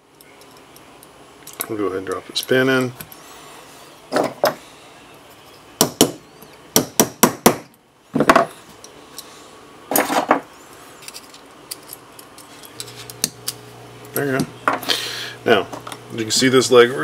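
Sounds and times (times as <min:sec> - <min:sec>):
small parts clicking: 0:00.1 - 0:03.2, 0:10.7 - 0:14.9.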